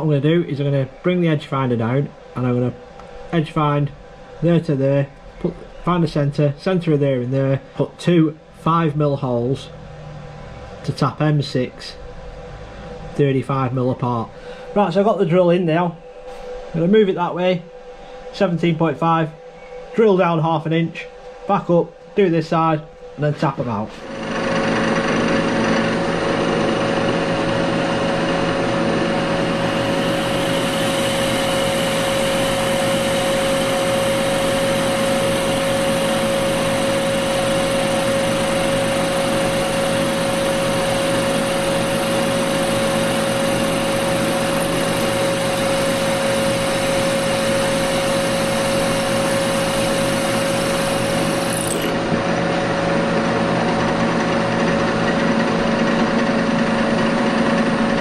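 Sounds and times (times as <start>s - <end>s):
motor hum: 0.0s - 58.0s
drill cutting metal: 24.0s - 58.0s.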